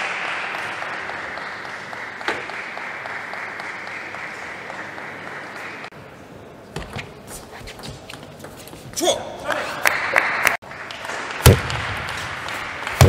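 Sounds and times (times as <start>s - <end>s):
audience applauding: 0.0s - 5.9s, 9.6s - 13.0s.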